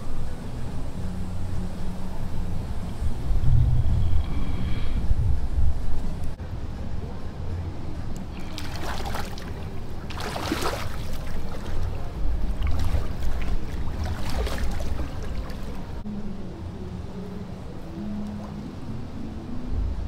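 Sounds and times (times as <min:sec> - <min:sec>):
low rumble: 0:00.0 - 0:10.4
paddle splashing water: 0:08.2 - 0:16.0.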